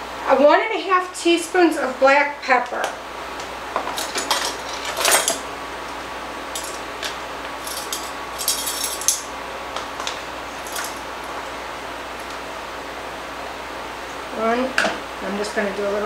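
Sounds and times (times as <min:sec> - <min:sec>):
metal measuring spoons clinking: 0:06.6 - 0:06.8, 0:07.6 - 0:09.2.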